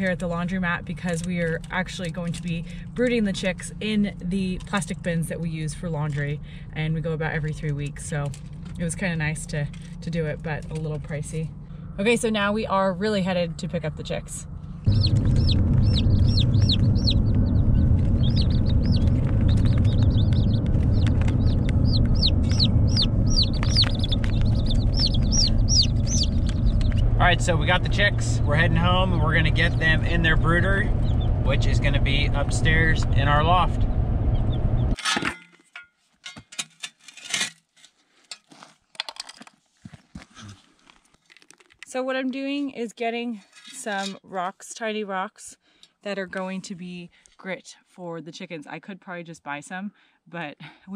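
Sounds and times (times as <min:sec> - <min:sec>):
steady low rumble: 0:00.0 - 0:35.0
chicks peeping: 0:14.9 - 0:35.0.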